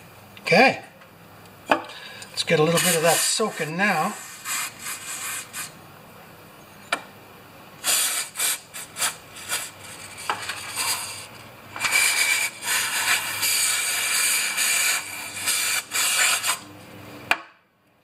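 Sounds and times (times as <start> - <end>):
aerosol spray hissing: 2.7 - 5.8, 7.8 - 16.6.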